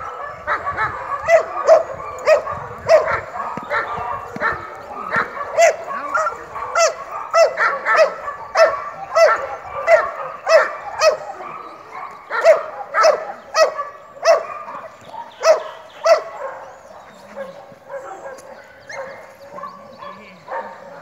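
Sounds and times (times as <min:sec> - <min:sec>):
dog barking sharply: 0:00.5 - 0:14.8.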